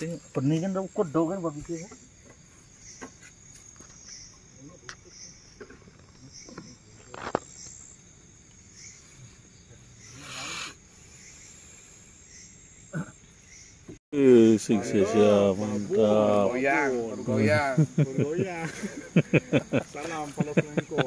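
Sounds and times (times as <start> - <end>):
insects chirring: 0.0 - 21.0.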